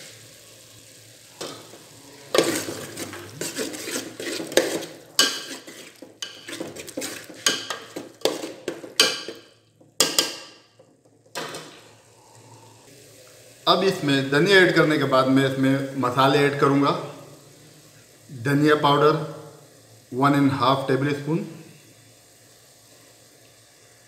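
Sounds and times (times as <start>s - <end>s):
spoon stirring thick gravy: 1.4s - 10.7s.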